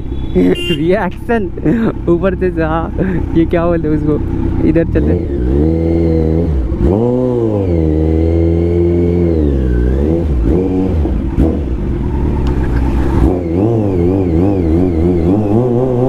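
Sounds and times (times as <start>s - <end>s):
motorcycle engine revving: 3.8s - 16.0s.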